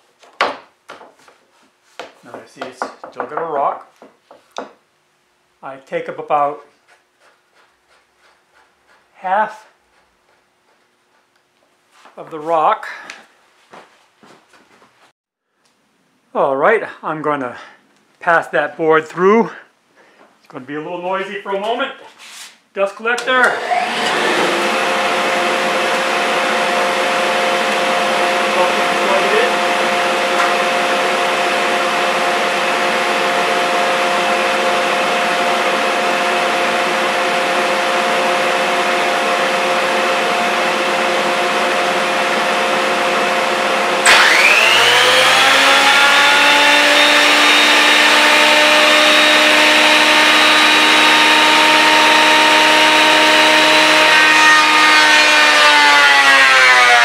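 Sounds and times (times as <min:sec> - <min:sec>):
dust collector running: 0:23.4 - 0:57.0
thickness planer motor whine: 0:23.4 - 0:57.0.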